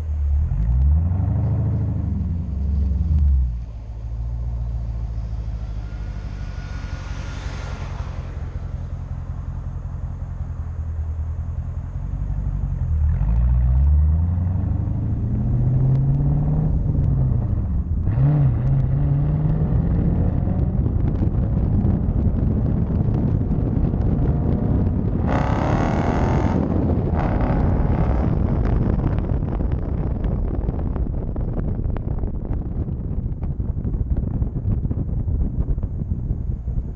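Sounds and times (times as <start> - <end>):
car exhaust revving: 0.0 - 32.4
short rush of noise: 5.0 - 10.0.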